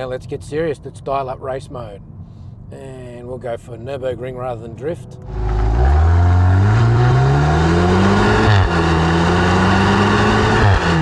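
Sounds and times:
car engine accelerating hard: 5.2s - 11.0s.

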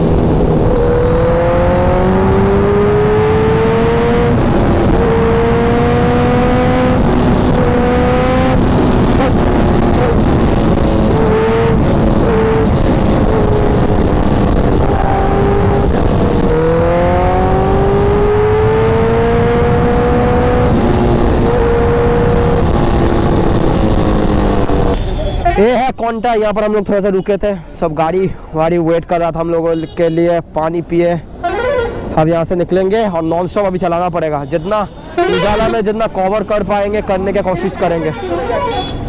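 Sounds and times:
wind rush: 0.0s - 24.9s
motorcycle engine at speed: 0.0s - 25.0s.

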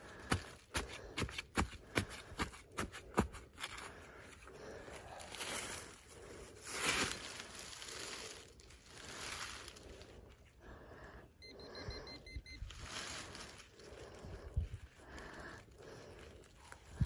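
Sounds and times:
hands rustling in dirt: 0.1s - 10.7s, 12.6s - 17.0s
short high beeps: 11.4s - 12.6s.

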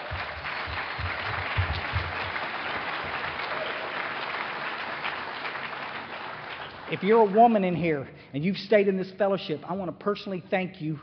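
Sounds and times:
audience applauding: 0.0s - 7.8s.

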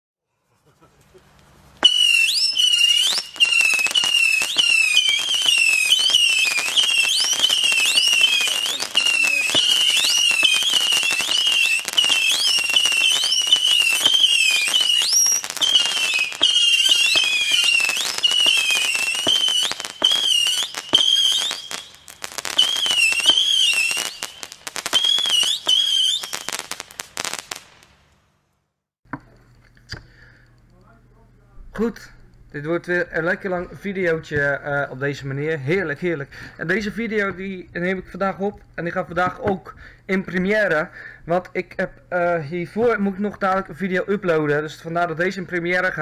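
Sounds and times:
whistling firework shots: 1.8s - 28.0s
firework pops and crackle: 1.8s - 28.2s.

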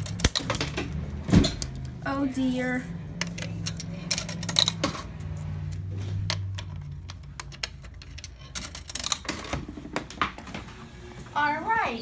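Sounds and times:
coins clinking in coin slot: 0.0s - 5.7s, 8.1s - 9.6s
low steady hum: 0.0s - 5.8s.

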